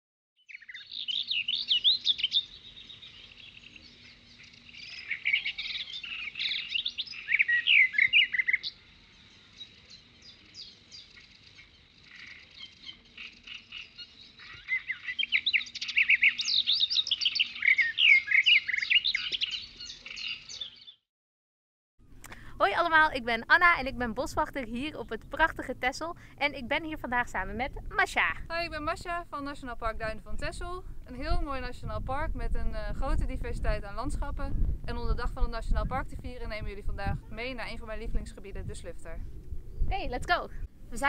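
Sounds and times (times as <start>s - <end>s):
birds singing: 0.4s - 21.0s, 24.3s - 31.7s.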